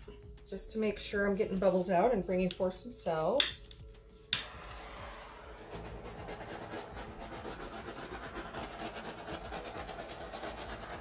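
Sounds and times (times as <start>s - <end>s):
butane torch flame hissing: 4.4s - 11.0s.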